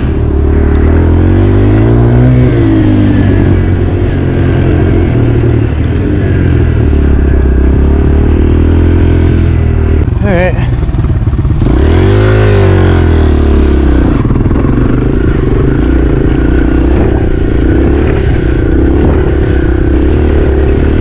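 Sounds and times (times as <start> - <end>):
dirt bike engine running: 0.0 - 21.0.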